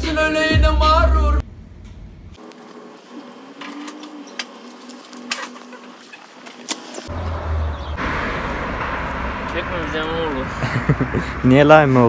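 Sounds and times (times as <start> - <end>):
low rumble: 7.1 - 11.4.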